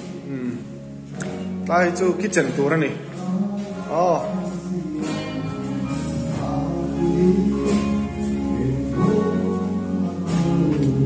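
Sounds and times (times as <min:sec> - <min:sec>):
background music chords: 0:00.0 - 0:11.0.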